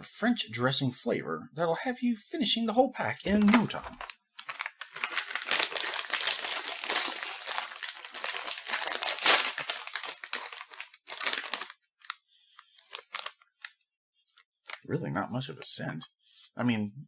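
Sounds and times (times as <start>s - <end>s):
plastic snack bag crinkling: 3.3s - 14.9s.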